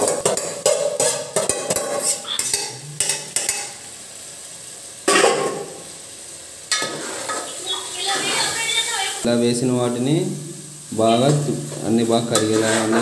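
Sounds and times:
oil sizzling: 0:00.0 - 0:13.0
spoon scraping steel bowl: 0:00.4 - 0:03.2, 0:12.3 - 0:13.0.

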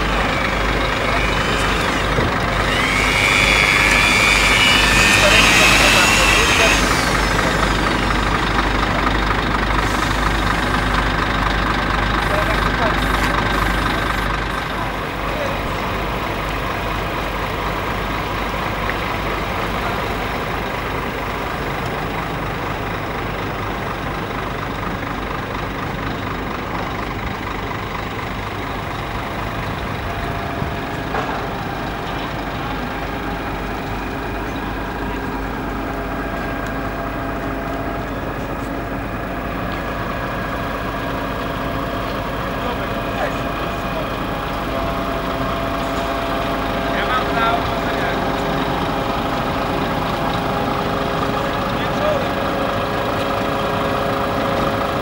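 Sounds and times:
diesel truck engines idling: 0:00.0 - 0:55.0.

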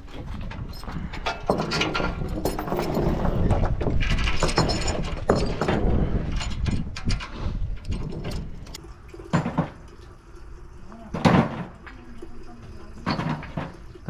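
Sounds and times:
chain clanking on wooden deck: 0:00.0 - 0:10.0, 0:12.9 - 0:14.0.

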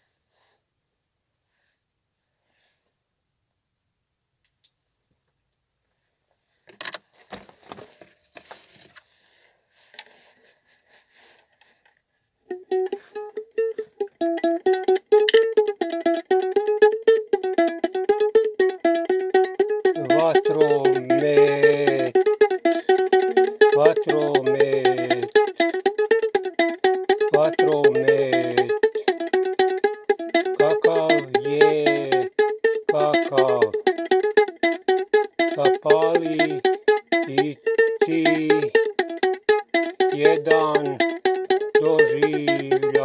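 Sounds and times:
ukulele strummed fast: 0:12.5 - 0:43.0.

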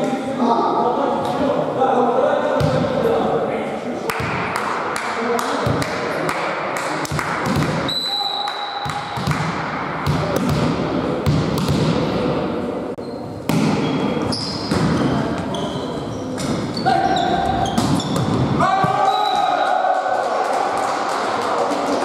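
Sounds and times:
players' voices: 0:00.0 - 0:22.0
volleyball thudding and struck: 0:08.8 - 0:12.2, 0:13.5 - 0:15.1
sneaker squeaks on court: 0:13.0 - 0:18.5.

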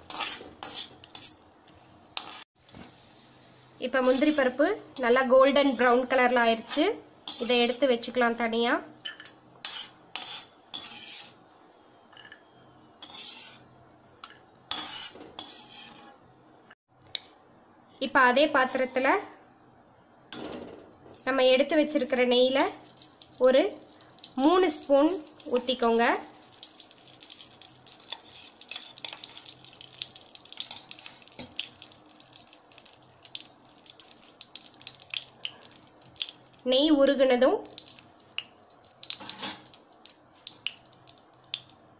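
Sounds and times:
metal skimmer scraping a pan: 0:00.0 - 0:01.4, 0:09.6 - 0:11.4, 0:13.0 - 0:13.6, 0:14.7 - 0:16.2, 0:39.1 - 0:39.7
ghee sizzling and crackling: 0:00.0 - 0:08.6, 0:09.3 - 0:12.1, 0:12.9 - 0:16.8, 0:21.1 - 0:41.9.

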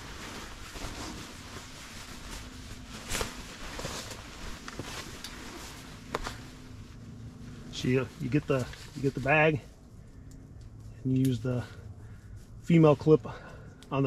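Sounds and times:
quilts rustling and swishing: 0:00.0 - 0:09.6.

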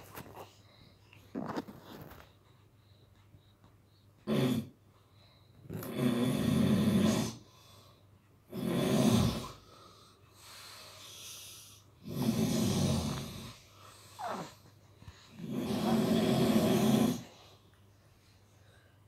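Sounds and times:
person snoring: 0:05.7 - 0:07.5, 0:08.5 - 0:09.6, 0:11.1 - 0:14.6, 0:15.3 - 0:17.4.

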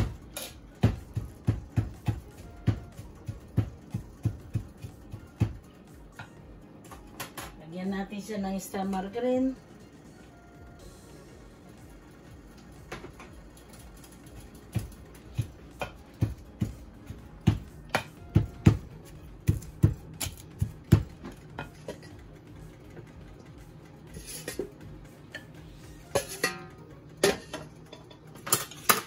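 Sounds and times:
wooden pestle pounding in mortar: 0:00.0 - 0:05.7, 0:14.7 - 0:21.3.

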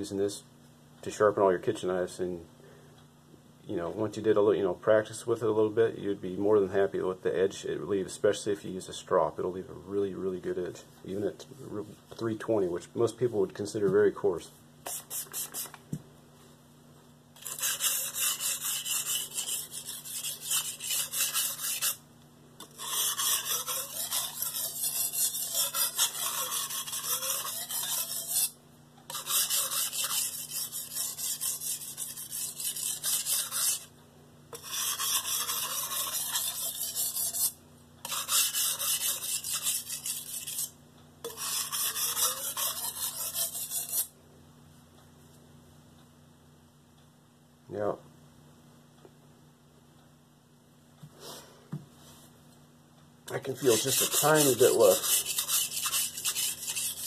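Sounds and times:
knife blade scrubbing on wet whetstone: 0:14.9 - 0:15.7, 0:17.4 - 0:22.0, 0:22.6 - 0:33.9, 0:34.6 - 0:44.1, 0:53.4 - 0:57.0.

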